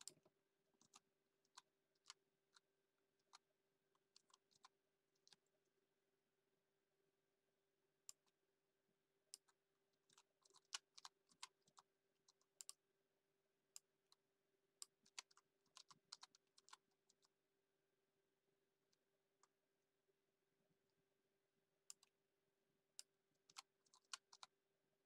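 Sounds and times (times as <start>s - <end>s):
keyboard typing: 23.5s - 24.5s.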